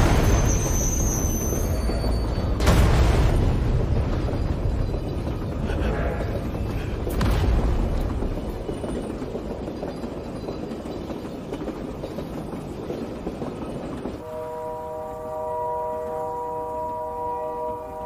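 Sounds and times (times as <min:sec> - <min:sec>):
train rumbling on rails: 0:00.0 - 0:18.0
sudden boom: 0:02.6 - 0:04.8.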